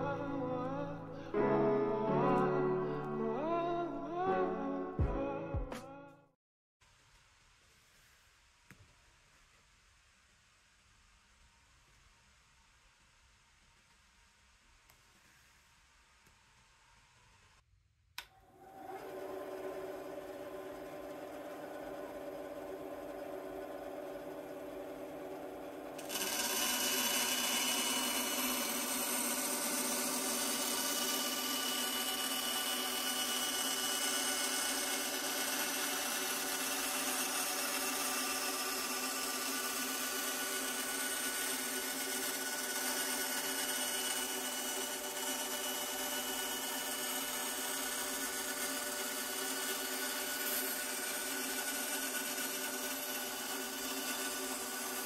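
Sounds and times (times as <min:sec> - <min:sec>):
motor humming: 0:18.4 - 0:55.0
band saw cutting wood: 0:18.9 - 0:55.0.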